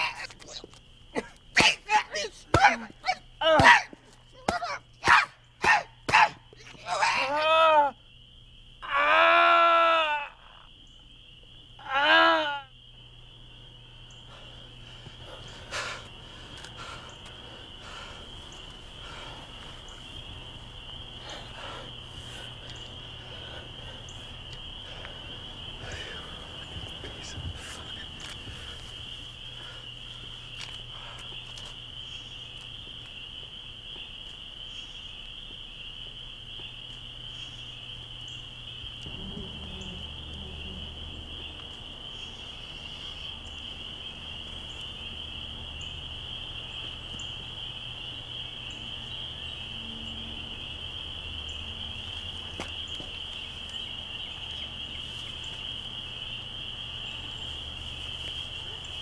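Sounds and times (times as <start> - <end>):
insects chirping: 0.0 - 59.0
low steady hum: 34.6 - 52.6.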